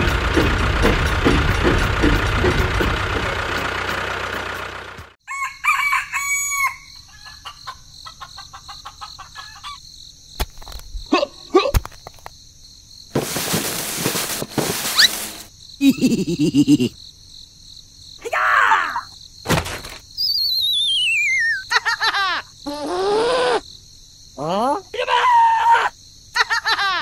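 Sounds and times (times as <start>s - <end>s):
rooster crowing: 5.2s - 7.5s
hens clucking: 7.2s - 9.8s.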